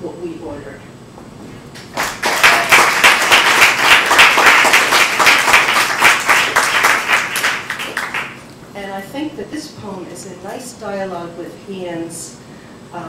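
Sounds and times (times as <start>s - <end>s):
audience applauding: 1.8s - 8.4s.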